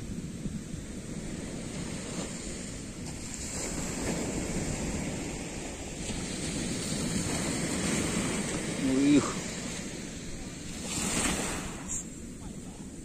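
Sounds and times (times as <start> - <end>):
waves breaking on a sandy beach: 0.0 - 13.0
wind rumbling on microphone: 0.0 - 13.0.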